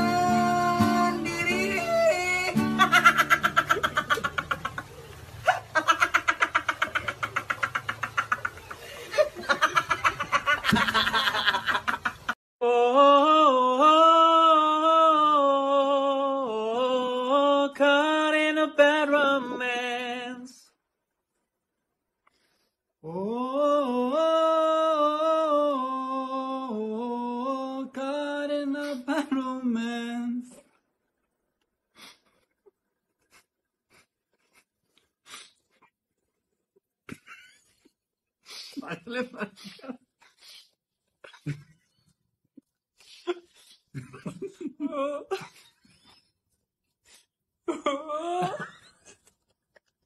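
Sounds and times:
person singing: 0.0 - 3.4, 12.6 - 20.7, 23.0 - 30.6
guitar: 0.0 - 5.4, 17.8 - 20.6
boys laughing hard: 2.7 - 12.4, 44.0 - 45.6, 47.7 - 49.2.

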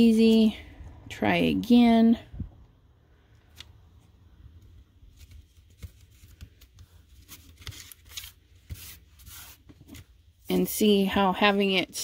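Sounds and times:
cardstock rustling and scraping: 5.1 - 10.2.

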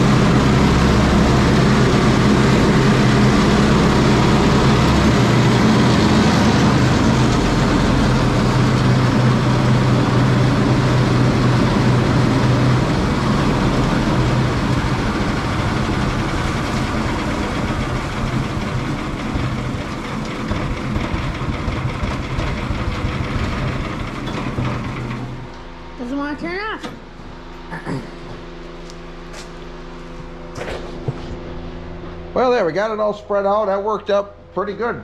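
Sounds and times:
chopper whirring through straw: 0.0 - 25.5.

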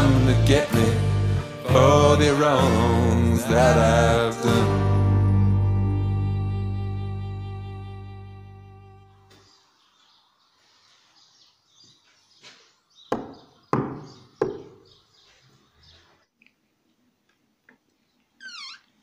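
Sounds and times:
knocks on wooden door: 13.1 - 14.8
high chirping squeak: 18.4 - 19.0.

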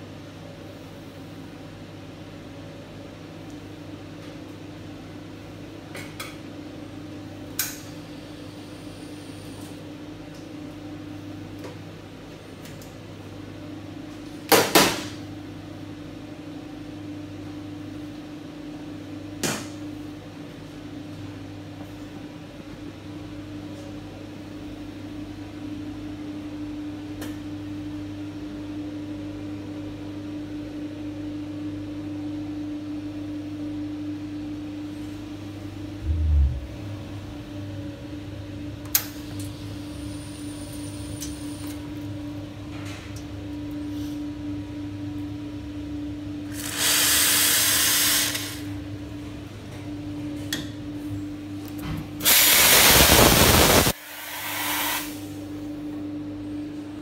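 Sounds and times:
espresso machine humming: 7.0 - 11.4, 37.0 - 42.6, 45.2 - 49.2.

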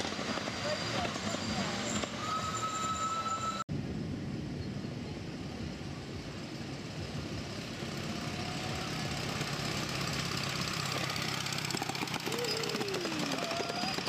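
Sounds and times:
miniature train rumbling past: 0.0 - 3.6, 5.7 - 14.0
train wheels clicking: 8.8 - 14.0.

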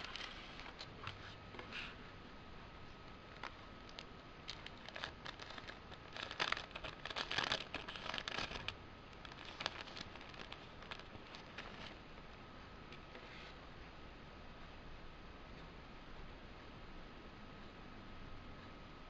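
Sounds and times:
thin sleeve crinkling: 0.0 - 1.8, 3.0 - 12.1.

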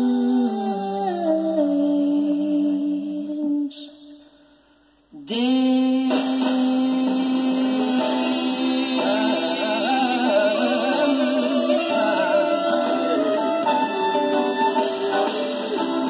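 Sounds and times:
person singing with vibrato: 0.0 - 4.5, 5.1 - 16.0
orchestral soul ballad: 5.2 - 16.0.

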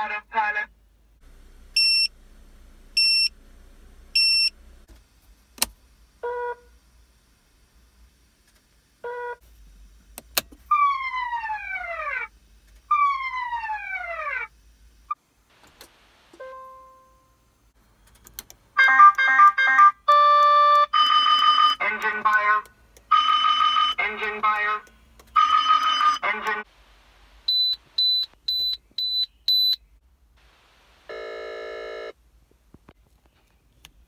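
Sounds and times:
high warning beeps: 1.8 - 2.1, 3.0 - 3.3, 4.2 - 4.5, 27.5 - 29.8.

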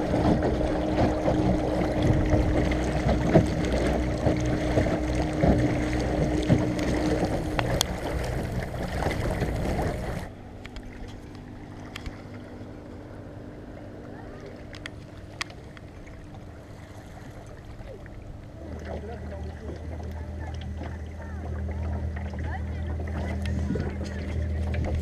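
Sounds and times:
water rushing along a boat hull: 0.0 - 25.0.

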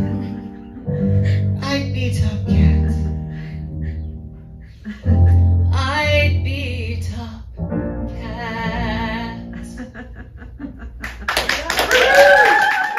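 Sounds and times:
woman singing with vibrato: 1.5 - 3.3, 8.2 - 9.5.

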